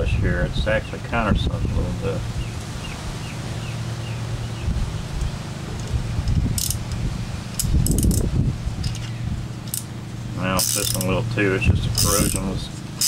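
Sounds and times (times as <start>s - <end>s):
steady low hum: 0.0s - 13.0s
sharp metallic clicks: 5.2s - 9.9s, 10.6s - 11.2s, 12.0s - 13.0s
metal parts clinking: 6.6s - 8.2s, 8.8s - 9.9s, 10.6s - 11.2s, 11.9s - 12.5s.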